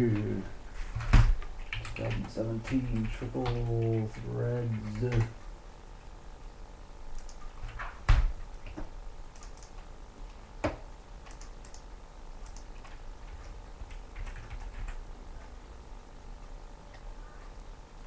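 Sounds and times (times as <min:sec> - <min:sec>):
typing on a keyboard: 0:01.6 - 0:05.4, 0:07.2 - 0:07.8, 0:08.6 - 0:09.8, 0:11.2 - 0:15.0.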